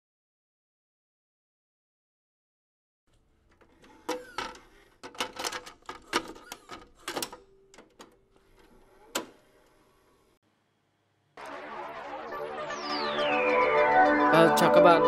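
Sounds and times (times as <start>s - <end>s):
vcr loading mechanism clunking: 3.5s - 9.8s.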